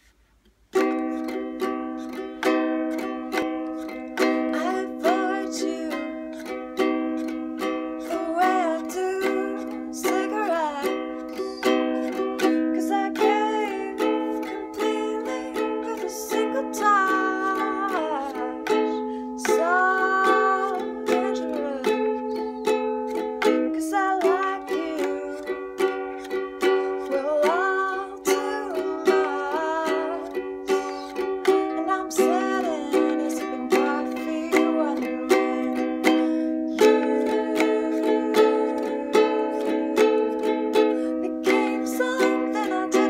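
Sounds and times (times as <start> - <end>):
acoustic string strumming: 0.6 - 43.0
woman singing: 0.8 - 43.0.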